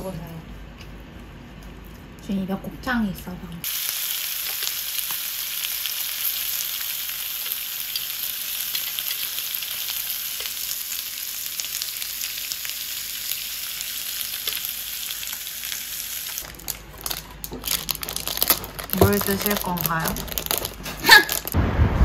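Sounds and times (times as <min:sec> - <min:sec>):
meat sizzling on a grill: 0:03.6 - 0:17.2.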